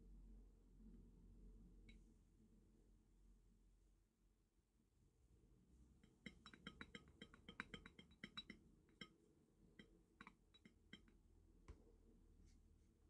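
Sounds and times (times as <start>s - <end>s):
brush tapping in plastic palette: 6.0s - 11.9s.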